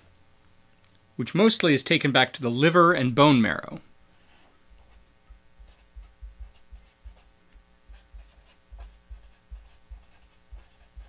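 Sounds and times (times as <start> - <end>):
faint steady hum: 0.0 - 11.0
soft low thuds: 4.7 - 11.0
marker scratching on paper: 5.6 - 7.3, 7.9 - 11.0.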